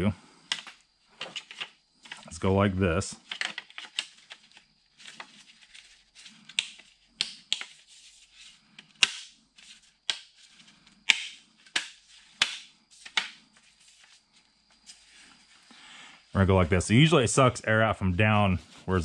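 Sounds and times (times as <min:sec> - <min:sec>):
plastic parts clicking: 0:00.5 - 0:02.3, 0:03.2 - 0:04.5, 0:11.0 - 0:13.4.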